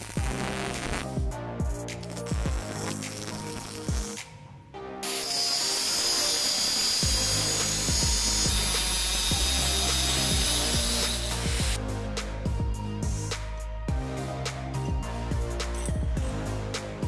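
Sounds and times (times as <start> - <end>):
background music with a beat: 0.0 - 5.9, 6.6 - 17.0
angle grinder cutting steel: 5.0 - 11.8.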